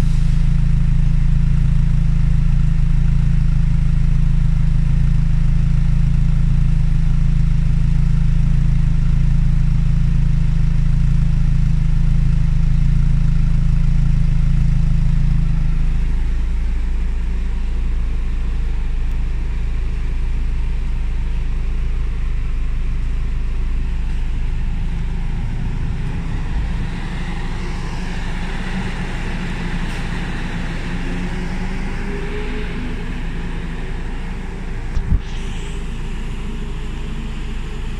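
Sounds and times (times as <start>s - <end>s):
car engine idling: 0.0s - 37.9s
faint rising whine: 14.2s - 37.9s.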